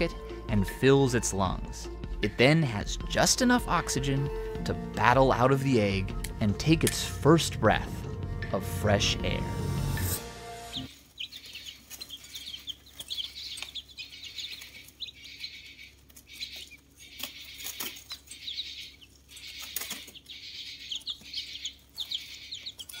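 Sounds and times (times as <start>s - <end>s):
chicks peeping: 10.6s - 23.0s.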